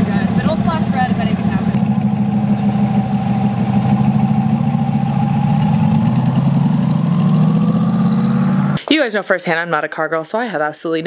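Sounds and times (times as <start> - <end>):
car engine at low revs: 0.0 - 8.8.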